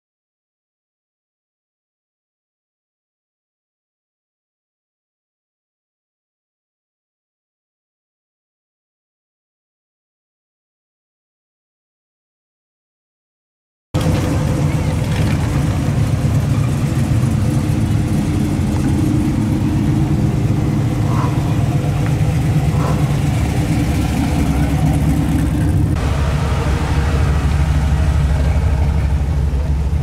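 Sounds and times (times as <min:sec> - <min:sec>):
cars rolling past: 0:14.0 - 0:30.0
pickup truck passing close: 0:14.0 - 0:30.0.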